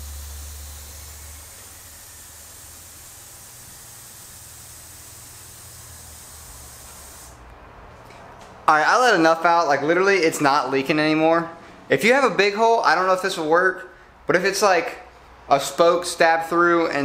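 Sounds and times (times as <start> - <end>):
air hissing from inner tube: 0.0 - 7.4.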